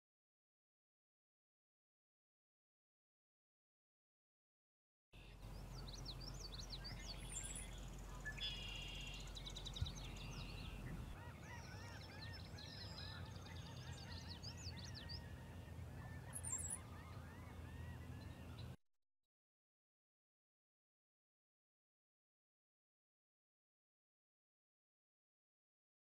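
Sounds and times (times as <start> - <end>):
songbirds chirping and singing: 5.2 - 18.8.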